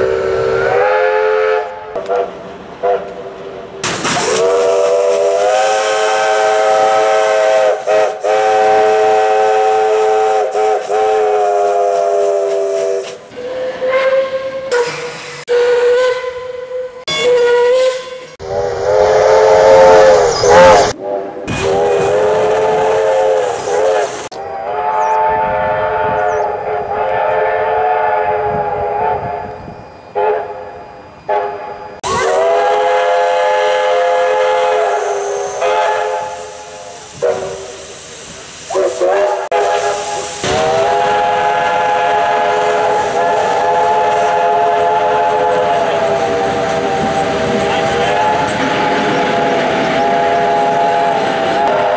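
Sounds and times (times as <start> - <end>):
single-note steam whistle toots: 0.0 - 3.2, 4.2 - 38.1, 38.7 - 51.9.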